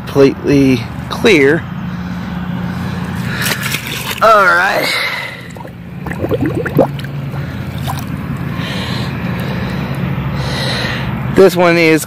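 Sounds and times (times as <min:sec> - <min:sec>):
pond water sloshing and gurgling: 0:03.0 - 0:09.0
steady low hum: 0:05.1 - 0:10.4.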